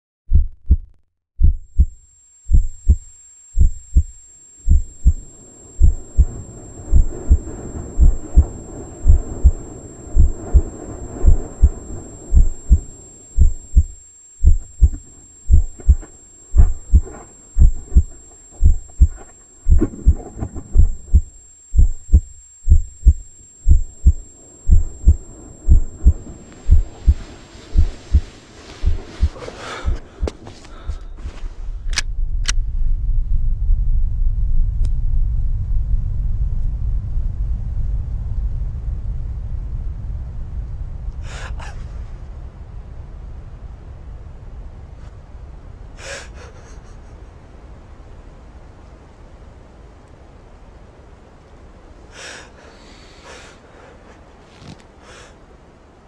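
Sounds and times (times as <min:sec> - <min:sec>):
heartbeat thumps: 0:00.3 - 0:31.4
dull rushing noise: 0:01.4 - 0:46.0.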